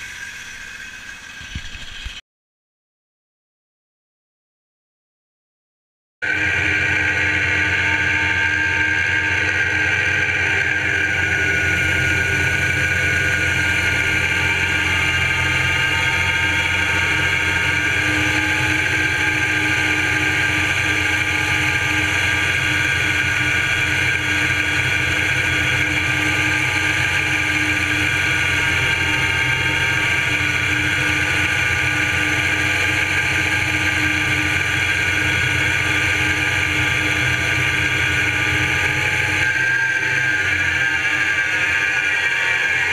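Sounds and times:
saw blade high whine: 0:00.0 - 0:02.2, 0:06.2 - 0:42.9
sawmill engine running: 0:00.0 - 0:02.2, 0:06.2 - 0:42.9.

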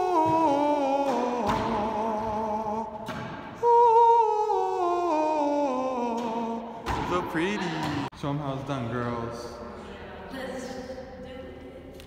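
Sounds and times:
man singing long held notes: 0:00.0 - 0:07.6.

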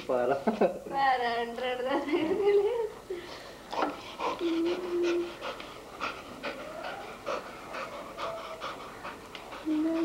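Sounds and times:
dog panting: 0:03.7 - 0:10.0.

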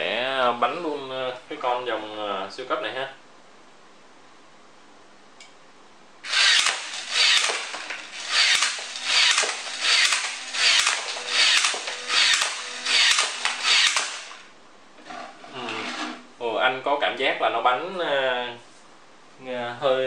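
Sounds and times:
toy card launcher whirring: 0:06.2 - 0:14.5
sharp clicks: 0:06.3 - 0:14.4.

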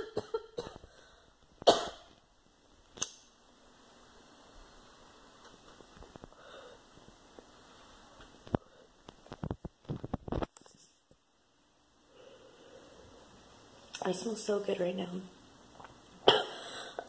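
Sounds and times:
faint steady hiss: 0:00.0 - 0:17.0
lighter clicks: 0:03.0 - 0:03.3
loud breathy noise: 0:12.1 - 0:13.4.

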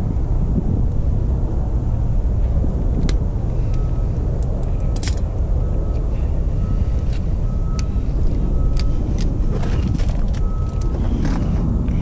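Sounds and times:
steady low rumble: 0:00.0 - 0:12.0
pliers and wire connectors clicking: 0:03.0 - 0:05.3, 0:07.0 - 0:12.0.

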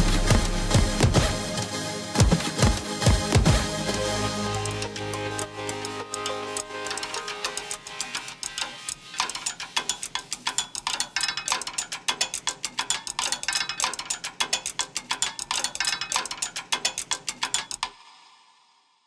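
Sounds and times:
drumsticks tapping plastic chains: 0:05.7 - 0:17.9.

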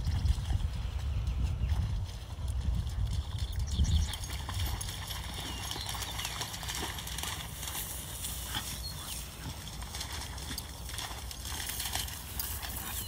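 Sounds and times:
wind rumble on microphone: 0:00.0 - 0:13.0
footsteps through tall grass: 0:05.8 - 0:13.0.

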